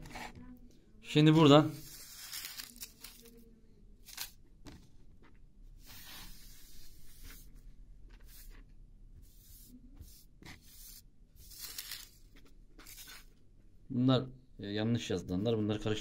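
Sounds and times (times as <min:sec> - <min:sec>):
paper slips rustling on table: 0:01.7 - 0:03.4, 0:11.4 - 0:12.2.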